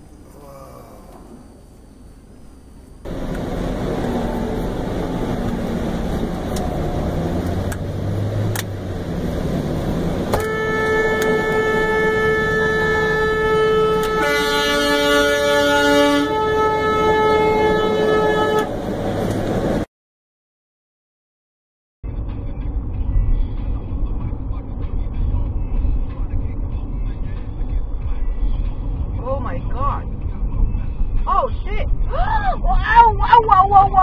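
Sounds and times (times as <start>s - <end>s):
lower horn tone: 0.0s - 19.4s
vehicle road noise: 0.0s - 19.9s, 22.0s - 34.0s
vehicle horn held: 10.3s - 18.7s.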